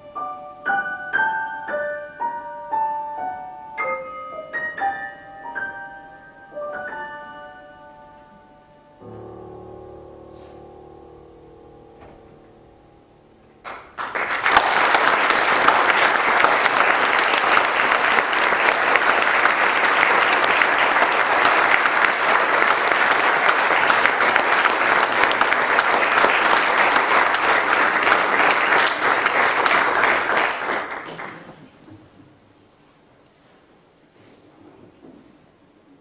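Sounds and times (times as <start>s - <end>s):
audience applauding: 13.6s - 31.8s.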